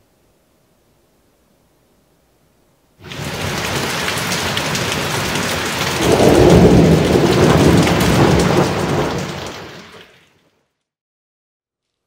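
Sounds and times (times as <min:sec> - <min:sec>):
thunder rumbling: 0:03.0 - 0:10.0
heavy rain on tree leaves: 0:03.0 - 0:10.7.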